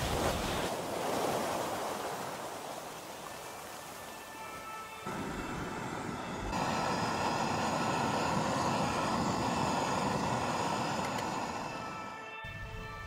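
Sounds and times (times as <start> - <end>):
camping stove burner hissing: 3.3 - 12.3.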